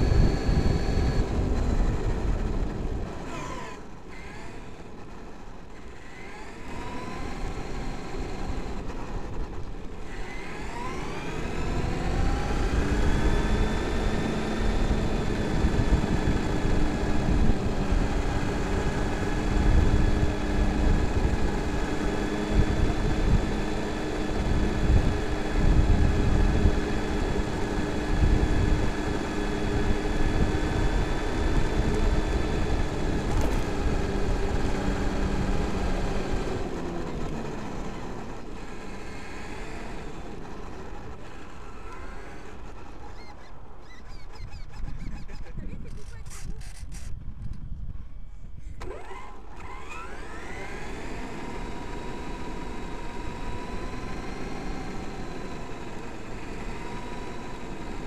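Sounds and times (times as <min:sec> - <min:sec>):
toy truck electric motor whining: 0:00.0 - 0:47.2, 0:48.2 - 0:58.0.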